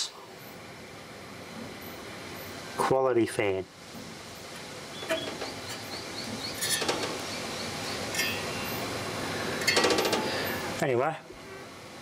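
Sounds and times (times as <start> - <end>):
fan whirring: 0.0 - 12.0
fan blade clicks and rattles: 5.1 - 7.3, 9.6 - 10.5.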